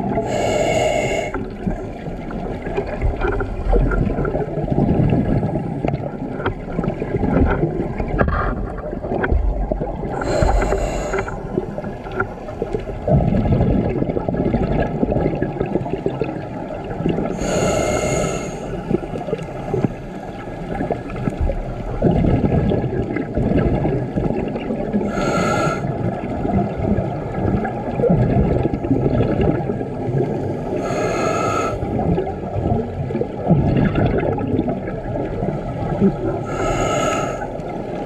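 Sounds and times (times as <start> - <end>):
exhaled bubbles rumbling: 0.0 - 38.0
regulator inhalation hiss: 0.3 - 1.4, 10.2 - 11.3, 17.4 - 18.7, 25.1 - 25.8, 30.8 - 31.8, 36.5 - 37.4.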